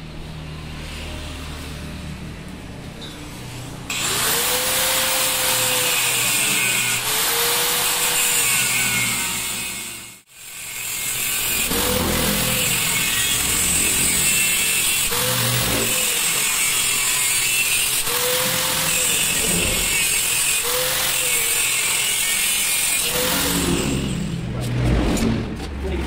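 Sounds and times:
motorcycle engine revving: 11.5s - 16.9s.

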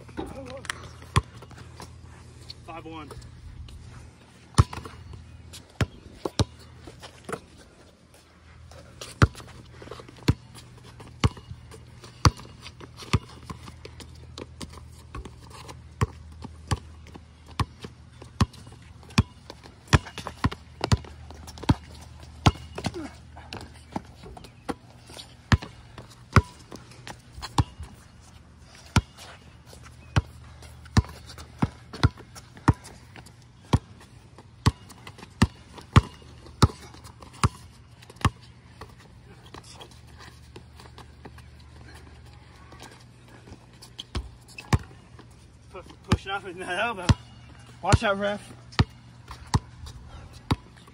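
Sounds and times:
basketball bouncing on concrete: 4.5s - 6.7s, 9.0s - 9.5s, 10.2s - 28.0s, 28.8s - 29.2s, 30.0s - 34.0s, 34.6s - 39.6s, 44.0s - 45.0s, 46.1s - 46.3s, 47.0s - 50.9s.

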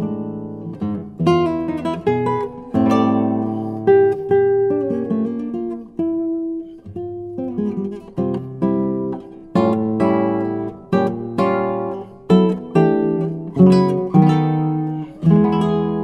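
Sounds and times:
acoustic guitar music: 0.0s - 16.0s.

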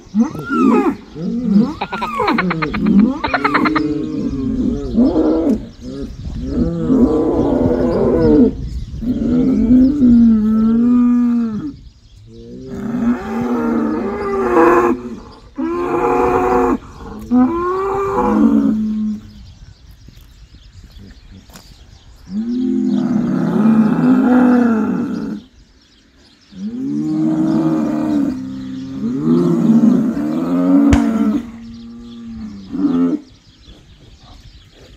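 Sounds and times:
bulls mooing: 26.6s - 33.3s.

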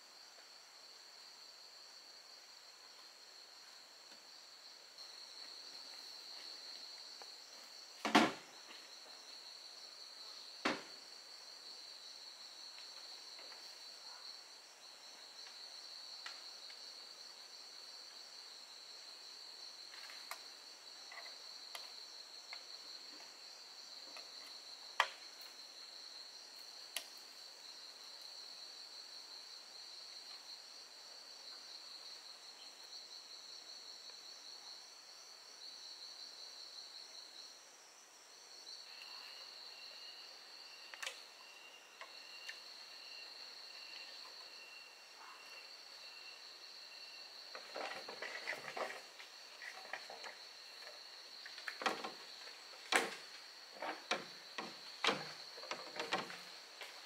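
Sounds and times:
insect chorus: 0.0s - 57.0s
bamboo poles knocking: 52.8s - 57.0s.

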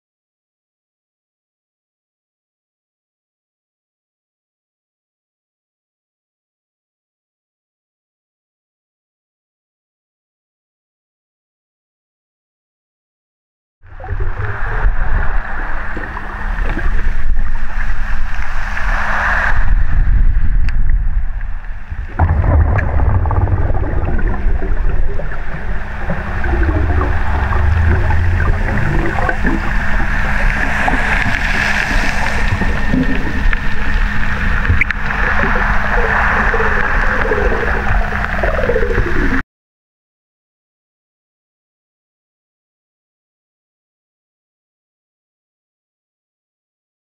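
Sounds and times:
constant low hum: 13.9s - 39.4s
underwater rumble of water: 13.9s - 39.4s.

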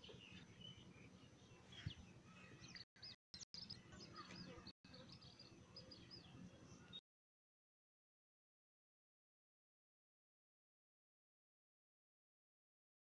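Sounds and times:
bird chirps: 0.0s - 7.0s.

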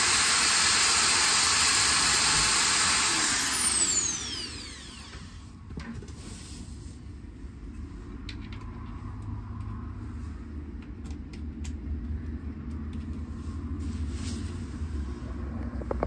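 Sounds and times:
faint clicks of brake parts: 7.7s - 9.8s.

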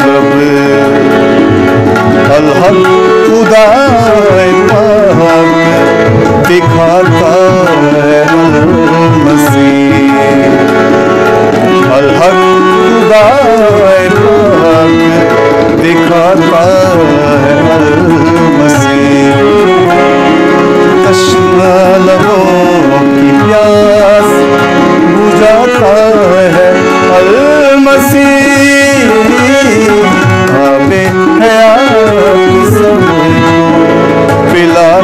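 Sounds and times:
devotional song: 0.0s - 35.0s
tabla rhythm: 0.0s - 35.0s.

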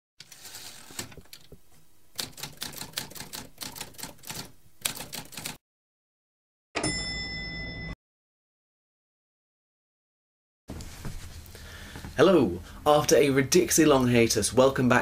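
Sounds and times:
typewriter keys clacking: 2.2s - 5.6s
typewriter bell ding: 6.8s - 8.0s.

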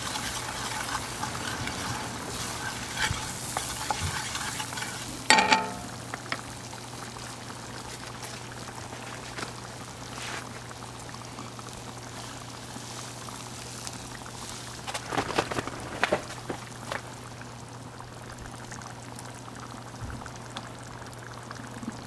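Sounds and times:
butter sizzling in a frying pan: 0.0s - 22.0s
sharp metal clank: 5.3s - 6.2s.

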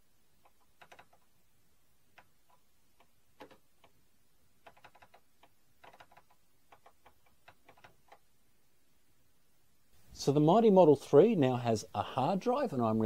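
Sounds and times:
keyboard keys clicking: 0.4s - 1.3s, 4.6s - 8.2s.

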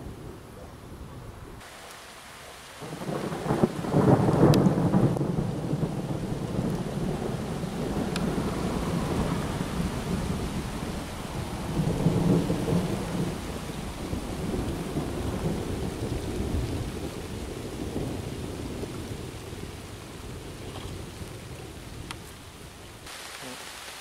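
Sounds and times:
steady rain: 0.0s - 24.0s
rolling thunder: 2.8s - 21.8s.

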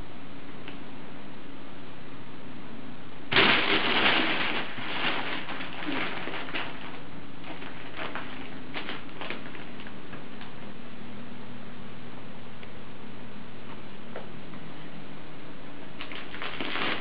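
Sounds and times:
crinkle toy crackling: 3.3s - 10.0s, 16.0s - 17.0s.

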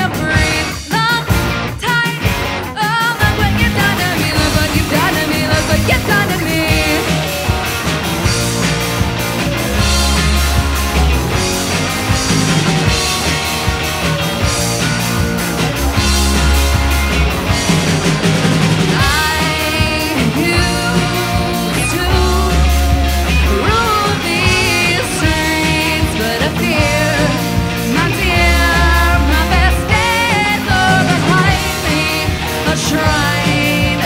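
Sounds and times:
woman singing lead: 0.0s - 7.4s, 18.8s - 34.0s
rock band playing: 0.0s - 34.0s.

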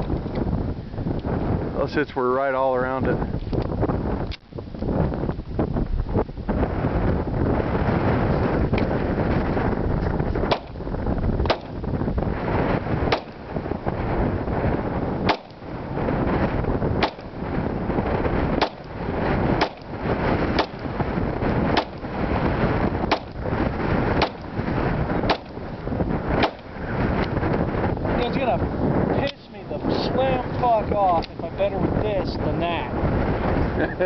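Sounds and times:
wind buffeting microphone: 0.0s - 34.0s
pistol shots: 10.5s - 10.8s, 11.5s - 11.8s, 13.1s - 13.5s, 15.2s - 15.6s, 17.0s - 17.4s, 18.6s - 18.9s, 19.6s - 19.9s, 20.5s - 20.9s, 21.7s - 22.1s, 23.1s - 23.4s, 24.2s - 24.5s, 25.3s - 25.6s, 26.4s - 26.7s.

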